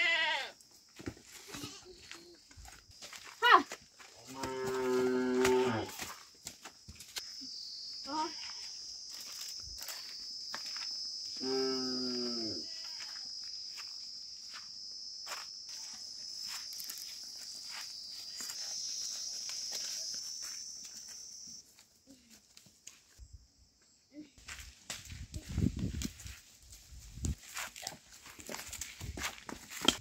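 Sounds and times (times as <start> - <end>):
footsteps on dirt path: 0.1 - 23.2, 24.4 - 30.0
high-pitched insect buzz: 7.1 - 21.6.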